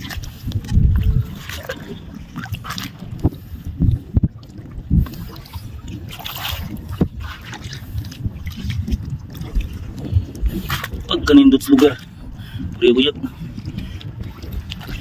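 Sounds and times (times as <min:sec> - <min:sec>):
footsteps splashing through water: 0:00.0 - 0:03.0, 0:05.2 - 0:10.0
wind buffeting microphone: 0:00.0 - 0:15.0.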